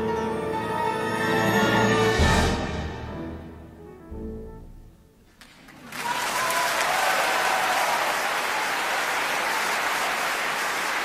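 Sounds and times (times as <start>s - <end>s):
music: 0.0s - 5.4s
applause: 5.4s - 11.0s.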